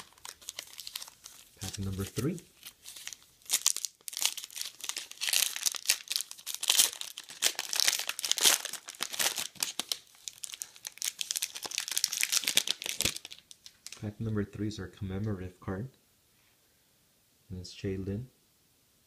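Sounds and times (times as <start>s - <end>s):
foil pack tearing and crinkling: 0.0s - 13.4s.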